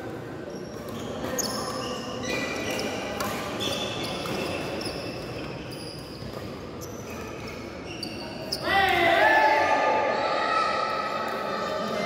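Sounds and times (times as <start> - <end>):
shoes squeaking on court floor: 0.1 - 8.9
rackets striking shuttlecock: 2.7 - 4.8.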